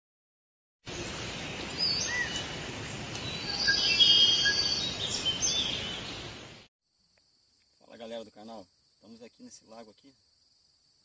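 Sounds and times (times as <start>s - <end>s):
bird chirps and whistles: 3.2s - 6.2s.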